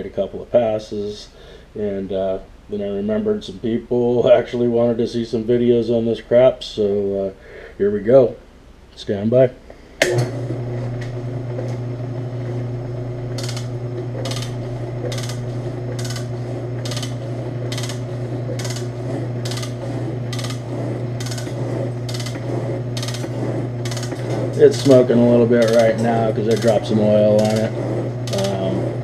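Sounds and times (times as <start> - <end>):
metal shaper motor hum: 10.0 - 29.0.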